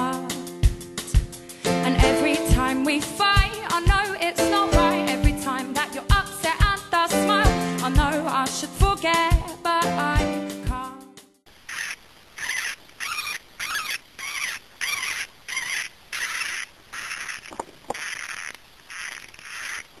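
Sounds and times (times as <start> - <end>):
hamster pups squeaking: 11.7 - 20.0.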